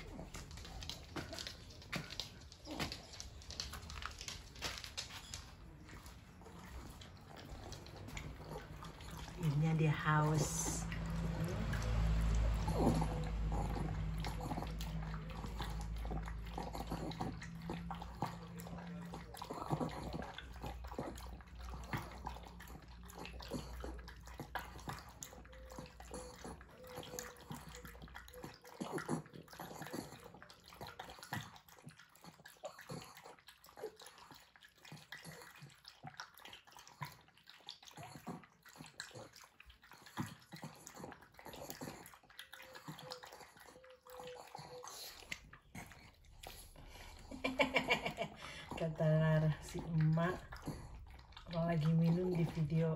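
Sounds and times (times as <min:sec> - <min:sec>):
dog lapping water: 0:00.0 - 0:52.9.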